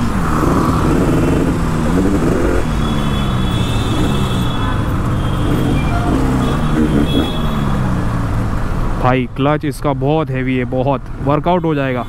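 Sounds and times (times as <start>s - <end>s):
two-stroke motorcycle engine revving: 0.0s - 4.5s, 5.4s - 8.0s.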